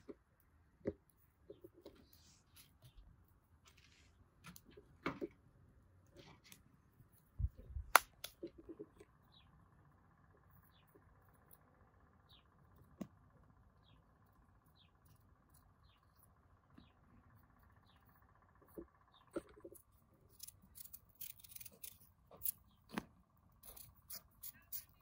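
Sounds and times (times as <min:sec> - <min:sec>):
sharp click: 0:07.9 - 0:08.4.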